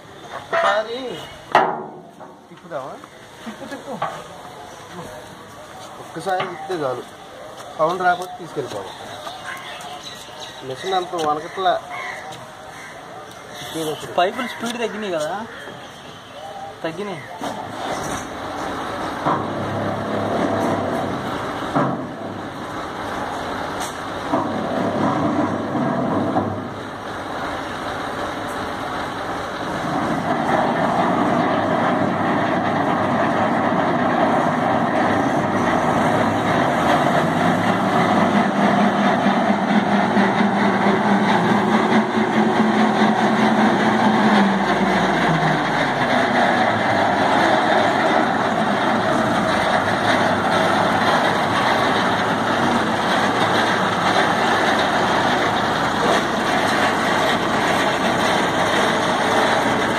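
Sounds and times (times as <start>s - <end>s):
sharp knocks: 1.5s - 2.4s
tractor diesel engine running: 17.6s - 59.9s.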